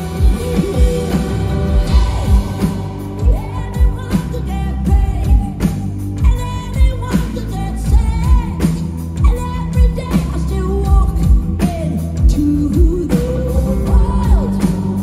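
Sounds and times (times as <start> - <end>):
lead vocalist singing: 0.0 - 15.0
live pop-rock band playing: 0.0 - 15.0.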